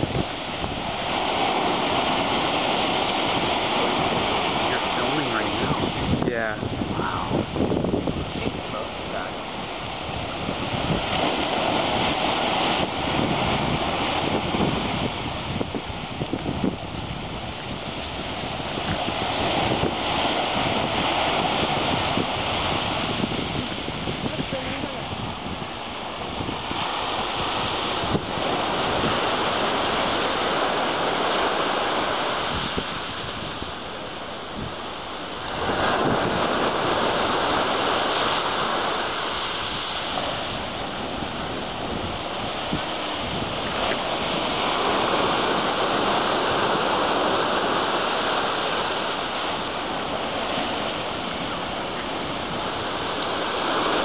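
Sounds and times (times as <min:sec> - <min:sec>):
ocean surf breaking: 0:00.0 - 0:54.0.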